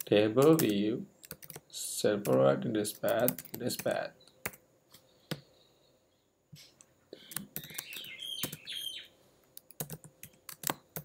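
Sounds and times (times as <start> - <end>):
keyboard keystrokes: 0.4 - 1.6.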